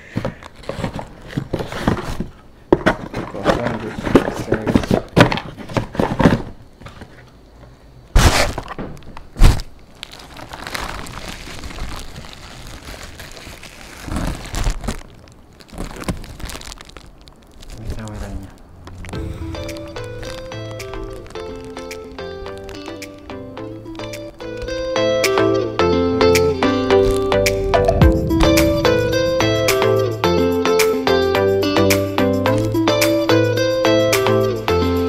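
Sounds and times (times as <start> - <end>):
packaging crinkling and rustling: 0.0 - 7.4, 8.2 - 23.3.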